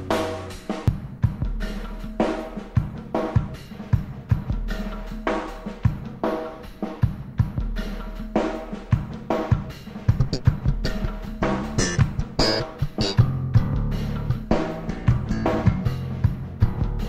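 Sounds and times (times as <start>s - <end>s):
drum kit beat: 0.0s - 17.0s
electric bass line: 10.2s - 17.0s.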